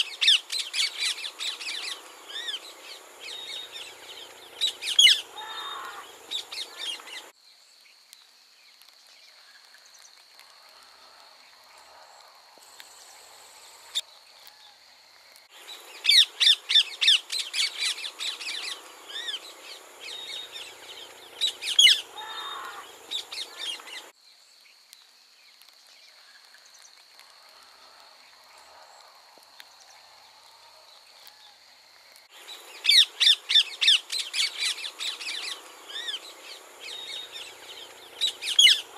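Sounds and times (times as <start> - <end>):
parakeets screeching: 4.6 - 7.0, 21.4 - 22.8, 38.2 - 38.9.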